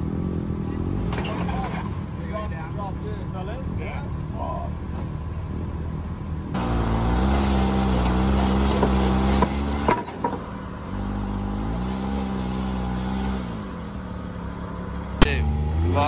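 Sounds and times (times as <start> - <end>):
engine revving: 6.5 - 16.0.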